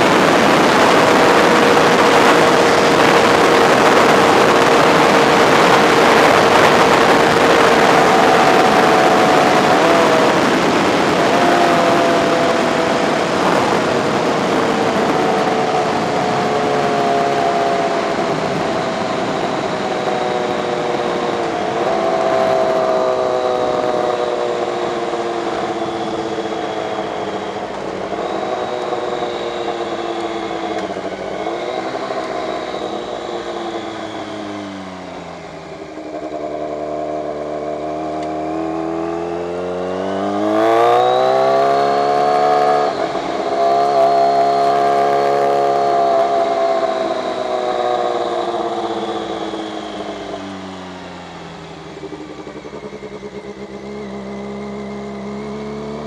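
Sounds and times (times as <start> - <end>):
wind rush: 0.0 - 37.6
motorcycle engine revving: 0.0 - 56.0.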